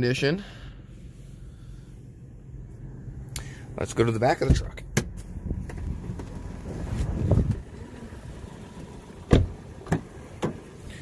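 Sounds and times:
steady low rumble: 0.0 - 11.0
car door thumping shut: 9.3 - 10.6.

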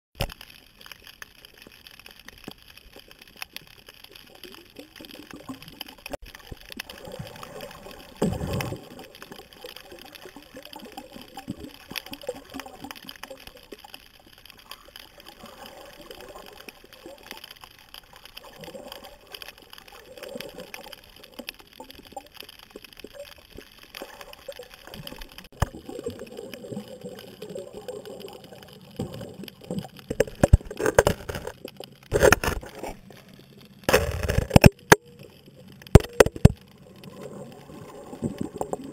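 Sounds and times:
faint clicks and crackles: 0.2 - 38.9
underwater water noise: 0.2 - 38.9
knocks and scrapes on camera: 30.1 - 33.0, 33.9 - 35.0, 35.9 - 36.6.

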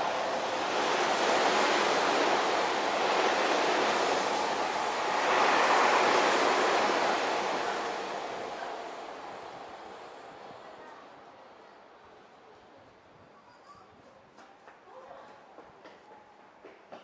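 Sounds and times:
electric train passing: 0.0 - 11.6.

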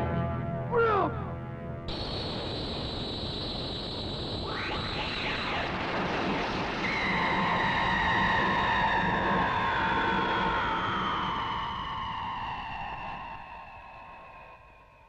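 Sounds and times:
falling whistling tones: 1.9 - 5.9
jet-like rushing with whistle: 1.9 - 14.5.

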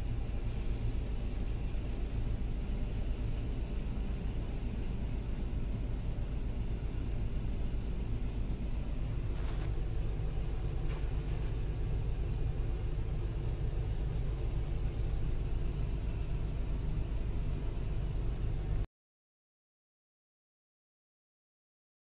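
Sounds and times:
brief hisses: 9.1 - 9.8.

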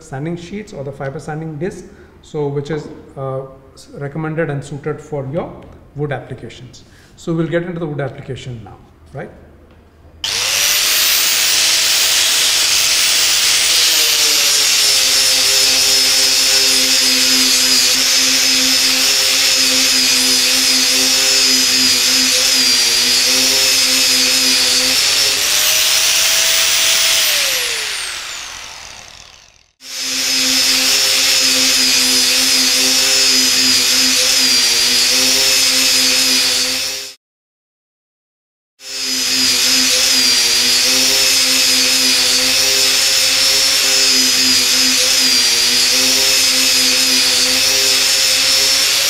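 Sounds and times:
angle grinder grinding concrete: 10.2 - 37.2, 38.8 - 49.0
angle grinder sanding wood: 10.2 - 37.2, 38.8 - 49.0.

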